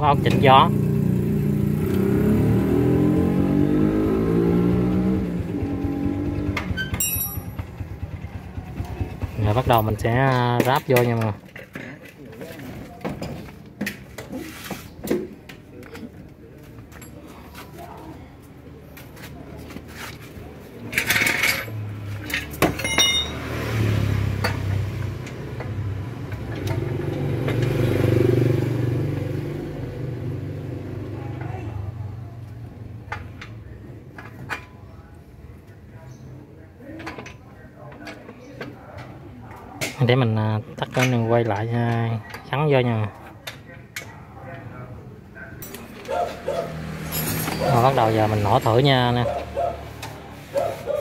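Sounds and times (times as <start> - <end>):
vehicle engine running: 5.2 - 10.0
metallic clinks and clicks: 7.0 - 7.7, 20.9 - 23.5, 47.0 - 47.9.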